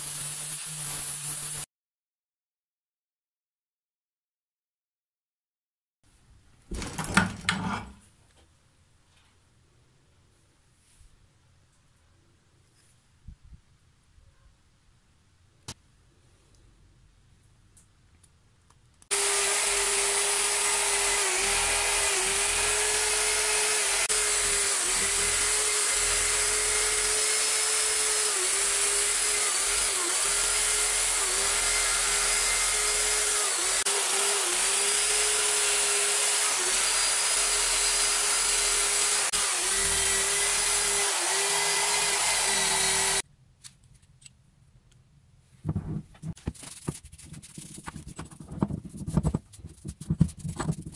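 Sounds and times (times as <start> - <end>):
wire brush hissing on metal: 0.0 - 1.6
drill motor whine: 19.1 - 43.2.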